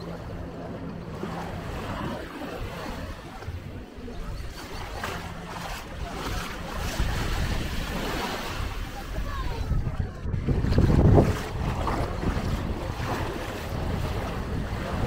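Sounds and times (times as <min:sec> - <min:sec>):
wind buffeting microphone: 0:00.0 - 0:15.0
surf washing onto shore: 0:04.6 - 0:09.8.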